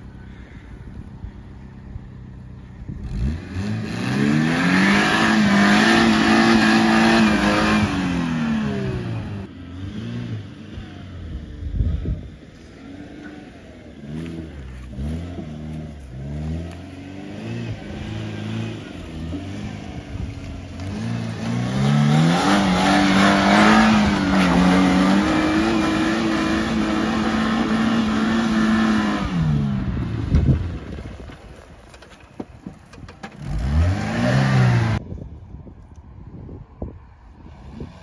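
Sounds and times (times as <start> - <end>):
engine revving: 3.0 - 11.8, 12.7 - 31.0, 33.4 - 35.0
tyres rushing through brush: 12.6 - 35.0.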